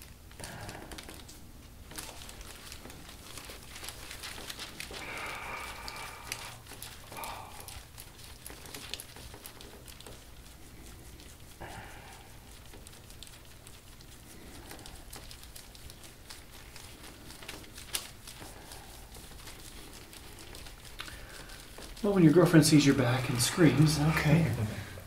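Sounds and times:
skin rubbing: 0.0 - 25.0
person breathing or groaning: 5.0 - 7.8, 11.6 - 12.4.

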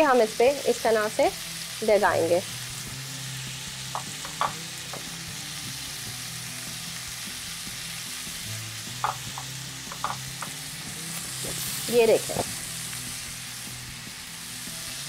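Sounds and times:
meat sizzling in a grill pan: 0.0 - 15.0
basting brush tapping: 3.9 - 5.2, 9.0 - 10.6.

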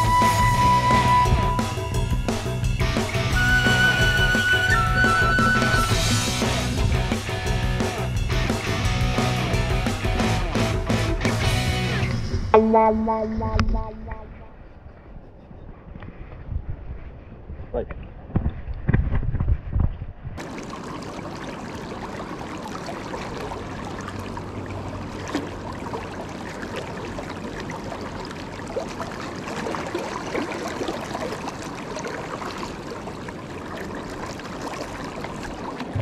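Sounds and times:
river water rushing over stones: 20.4 - 36.0.

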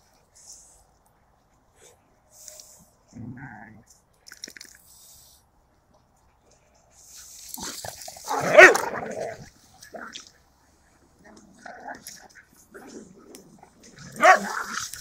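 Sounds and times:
dog barking: 8.3 - 9.0, 14.1 - 14.8.

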